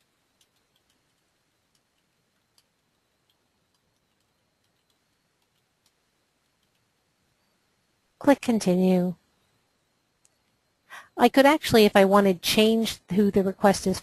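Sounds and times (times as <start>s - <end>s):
computer keyboard clicks: 0.4s - 6.9s.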